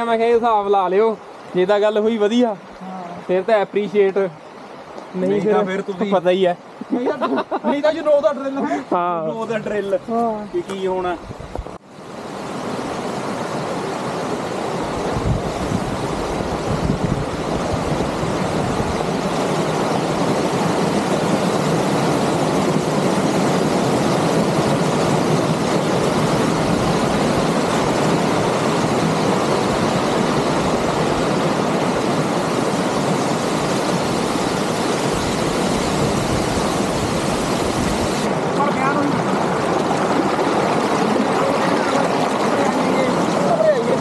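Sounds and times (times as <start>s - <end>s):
water splashing over rocks: 9.0s - 44.0s.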